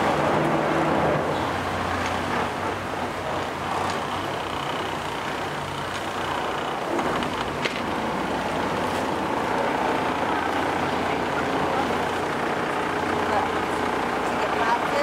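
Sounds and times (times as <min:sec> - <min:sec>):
boat engine droning: 0:00.0 - 0:15.0
water rushing: 0:00.0 - 0:15.0
wind: 0:00.0 - 0:15.0.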